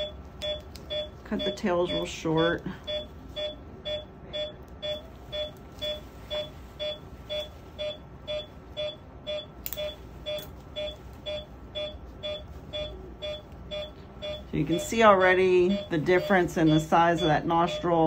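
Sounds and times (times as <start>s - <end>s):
monitor beeping: 0.0s - 18.0s.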